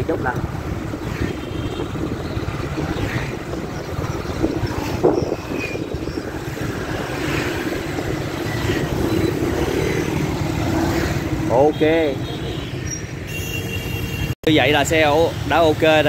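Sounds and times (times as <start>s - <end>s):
wind rushing over microphone: 0.0s - 11.8s.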